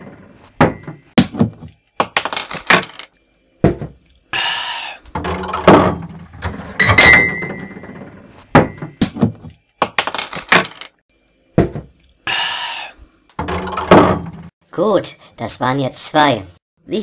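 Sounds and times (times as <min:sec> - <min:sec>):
glass bottles clinking: 0:06.8 - 0:07.8.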